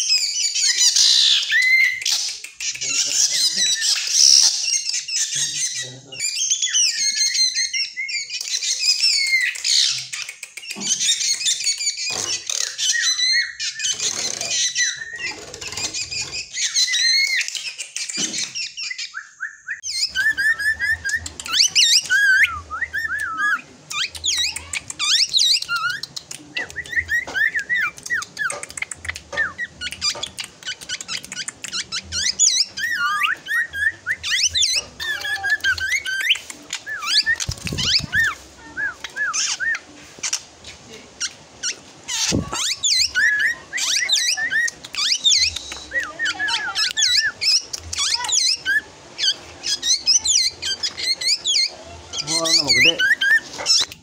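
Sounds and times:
bird whistling and chirping: 0.0 - 40.4, 41.2 - 53.9.

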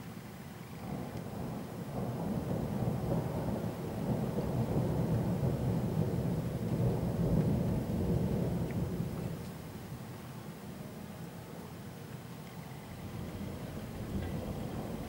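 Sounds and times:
rolling thunder: 0.8 - 9.4, 12.8 - 15.0.

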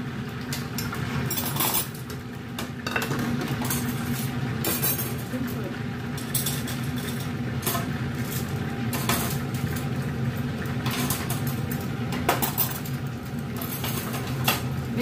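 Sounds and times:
range hood fan humming: 0.0 - 15.0
utensils clinking on bowl: 1.3 - 2.0, 2.8 - 5.5, 6.2 - 9.9, 10.8 - 13.0, 13.6 - 14.7.

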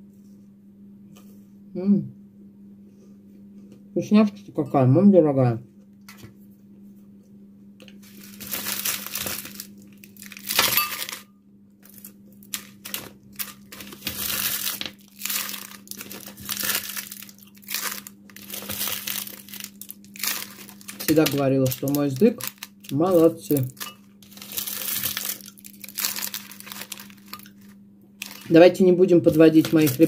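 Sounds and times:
plastic wrapping crinkling: 7.9 - 11.2, 11.8 - 30.0.

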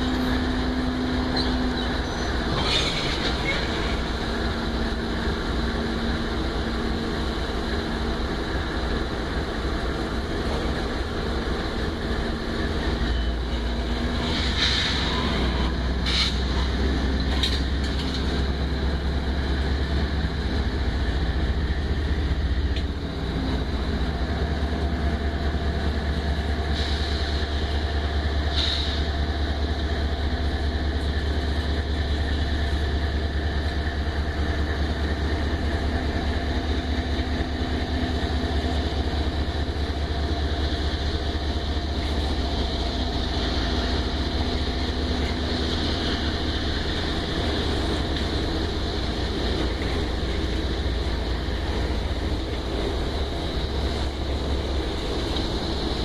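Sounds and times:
high wheel squeals: 0.0 - 4.2, 12.9 - 16.8
freight train rumbling past: 0.0 - 56.0.

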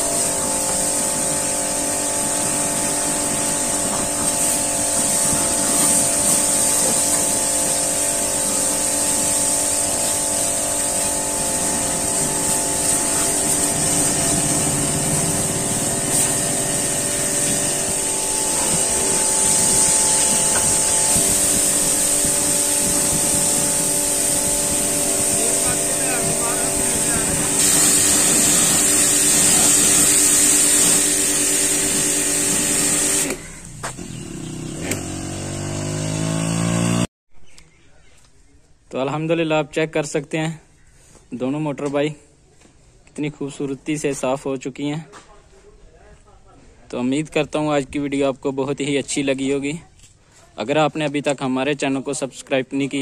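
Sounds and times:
high-pressure water jet hissing: 0.0 - 34.0
pressure washer pump humming: 0.0 - 37.0.

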